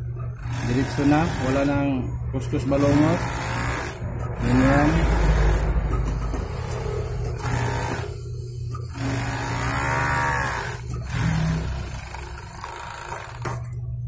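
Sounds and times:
sewing machine motor hum: 0.0s - 2.0s, 2.6s - 13.8s.

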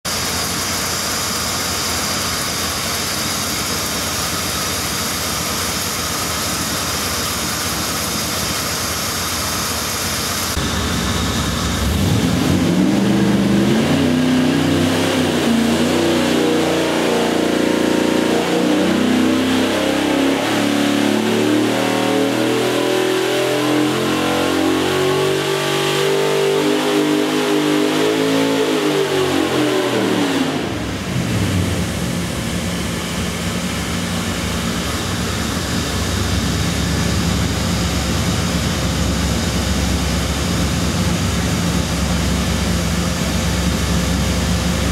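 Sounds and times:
engine revving on dyno: 0.1s - 44.9s.

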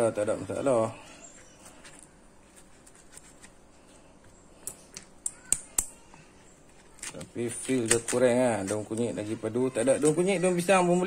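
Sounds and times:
leaf rustling: 6.2s - 11.0s.

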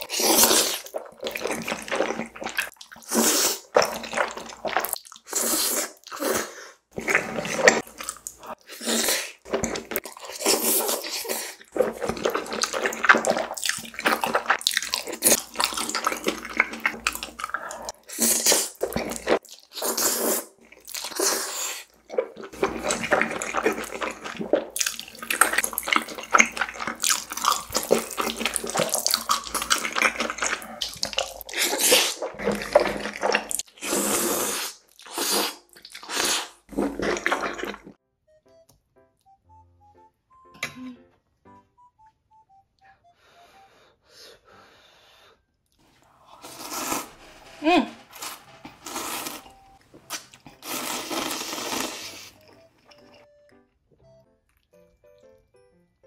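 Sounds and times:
wet chewing: 0.0s - 34.0s, 34.7s - 38.0s, 48.1s - 53.3s
slurping noodles: 0.0s - 38.0s, 45.9s - 52.7s.

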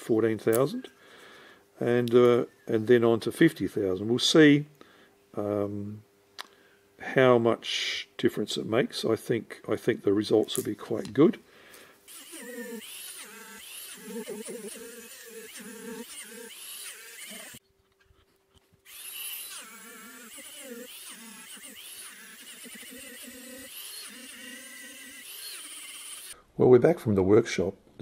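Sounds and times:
rotary tool buzzing: 12.0s - 17.6s, 18.8s - 26.4s.

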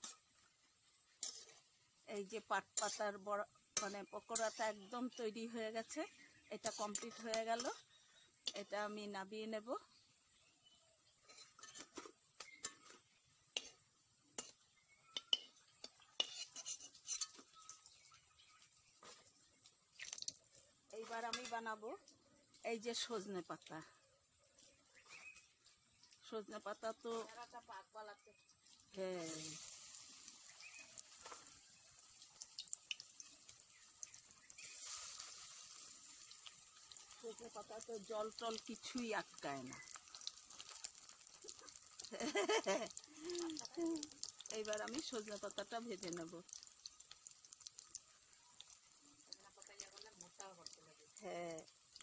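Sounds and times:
oil popping and crackling: 0.0s - 9.2s, 10.3s - 52.0s
batter frying in hot oil: 0.0s - 52.0s
metal spatula scraping a pan: 1.1s - 3.2s, 3.8s - 5.0s, 6.6s - 8.7s, 11.2s - 13.8s, 15.2s - 17.6s, 29.2s - 31.8s, 34.2s - 37.6s.

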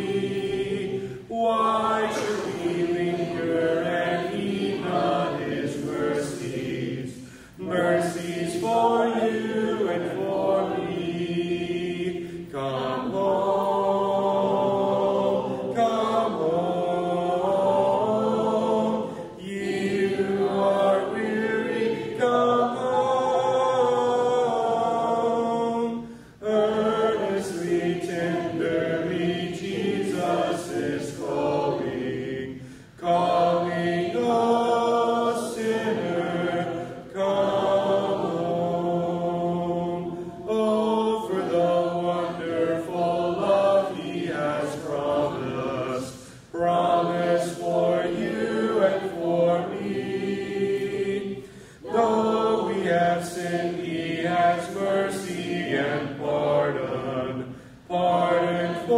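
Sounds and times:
congregation singing a hymn: 0.0s - 58.9s.

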